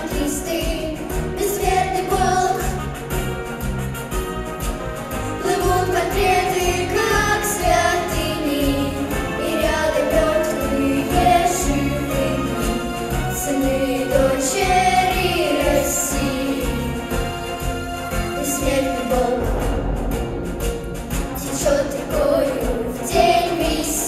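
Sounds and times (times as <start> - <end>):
girls singing together: 0.0 - 2.8, 5.4 - 17.3, 18.4 - 19.8, 21.3 - 24.0
instrumental backing track: 0.0 - 24.0.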